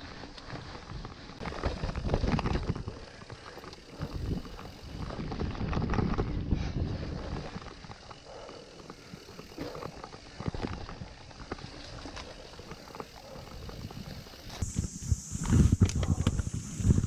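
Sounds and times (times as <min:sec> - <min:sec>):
wind rumble on microphone: 0:00.0 - 0:08.4, 0:13.2 - 0:17.0
bike rattling and knocking: 0:00.0 - 0:14.8
bike tyre noise: 0:00.0 - 0:17.0.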